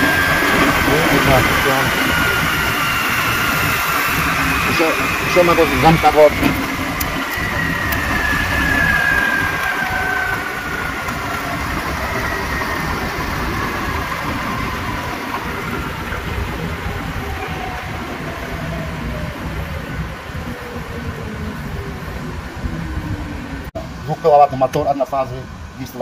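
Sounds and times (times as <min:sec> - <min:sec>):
loud mechanical hum: 0:00.0 - 0:17.8
machine whine falling in pitch: 0:00.0 - 0:23.7.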